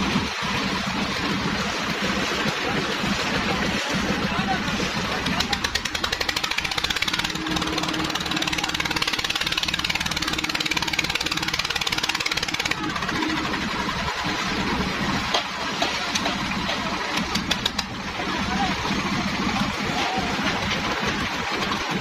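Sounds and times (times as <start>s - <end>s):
concrete mixer engine running: 0.0s - 22.0s
fast even knocking: 5.1s - 13.4s.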